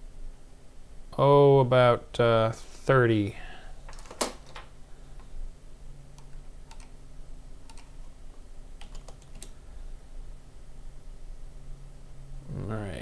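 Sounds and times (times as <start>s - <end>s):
low steady hum: 0.0s - 13.0s
mouse and keyboard clicks: 7.7s - 8.0s.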